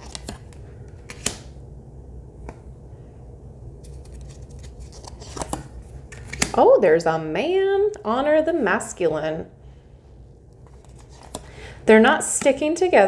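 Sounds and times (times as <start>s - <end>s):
cards clicking and tapping: 0.0s - 1.5s
low steady hum: 0.0s - 13.0s.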